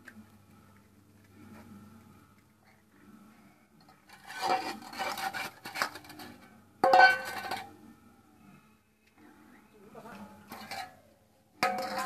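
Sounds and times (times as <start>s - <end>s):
steel bowl clattering: 4.0s - 7.7s, 10.5s - 11.0s, 11.6s - 12.0s.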